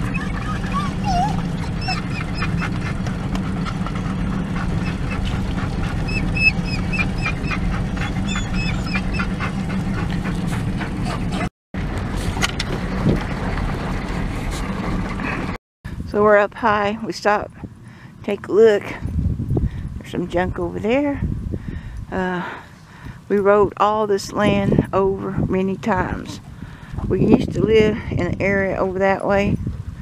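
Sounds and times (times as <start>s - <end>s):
truck cab rumble: 0.0s - 15.6s.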